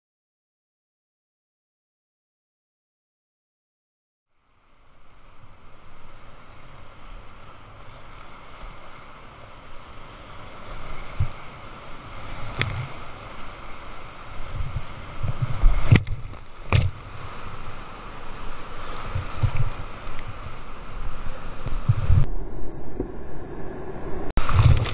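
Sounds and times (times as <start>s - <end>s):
whitewater rushing: 4.6s - 22.3s, 24.4s - 24.9s
paddle strokes thudding: 14.3s - 17.6s, 18.5s - 20.6s.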